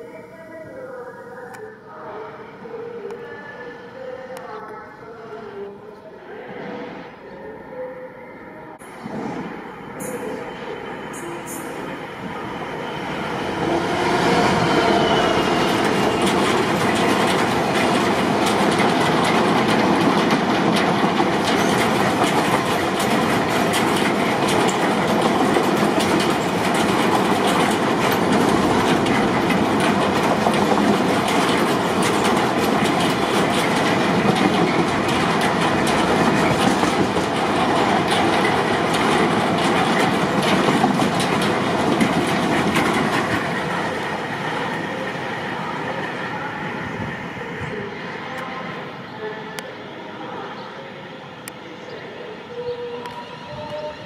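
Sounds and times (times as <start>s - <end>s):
train passing at speed: 1.9s - 54.0s
wheels clicking over rail joints: 15.8s - 43.6s.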